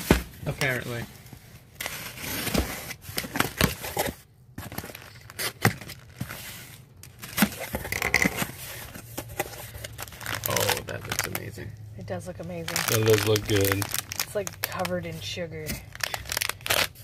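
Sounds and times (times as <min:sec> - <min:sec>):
knife slitting packing tape: 0:16.0 - 0:17.0.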